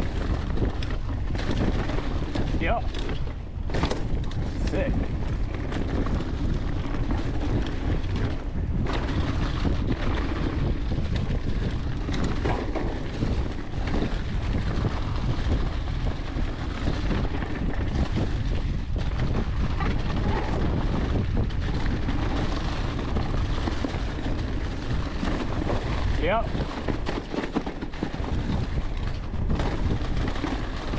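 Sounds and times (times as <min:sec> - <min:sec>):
wind on microphone: 0:00.0 - 0:30.9
bike tyres rushing through leaves: 0:04.4 - 0:27.3.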